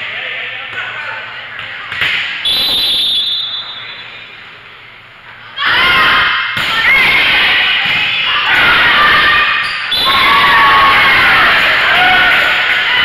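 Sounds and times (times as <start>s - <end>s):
murmur of spectators: 0.0s - 13.0s
referee's whistle trill: 2.4s - 4.2s, 9.6s - 10.8s.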